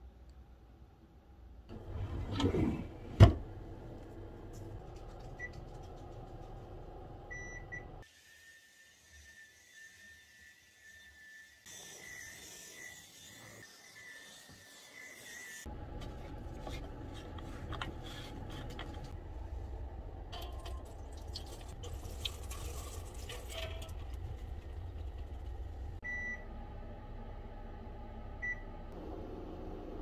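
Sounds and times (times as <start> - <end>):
washing machine beeps: 7.3 - 8.0, 26.0 - 26.5, 28.4 - 28.7
low steady hum: 15.7 - 30.0.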